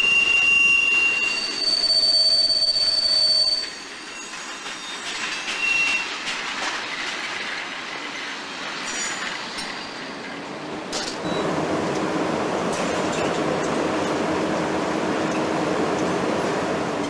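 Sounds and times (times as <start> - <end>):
steel wheels squealing: 0.0 - 10.2
freight train rolling past: 0.0 - 17.0.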